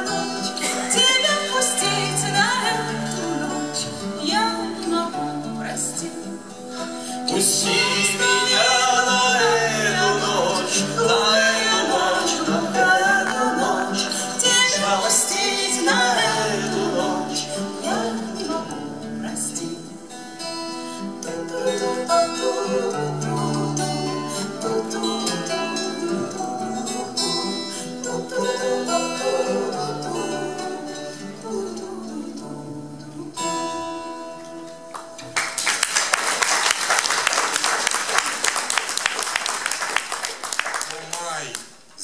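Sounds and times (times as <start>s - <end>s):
acoustic guitars playing: 0.0s - 40.6s
audience applause: 34.9s - 41.8s.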